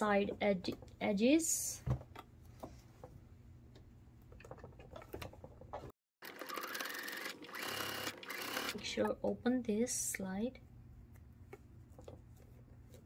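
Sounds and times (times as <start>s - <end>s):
sewing machine running: 6.2s - 8.8s.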